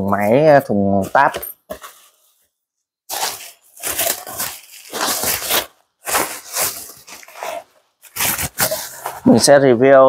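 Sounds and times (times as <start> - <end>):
packaging crinkling and tearing: 3.1 - 9.3.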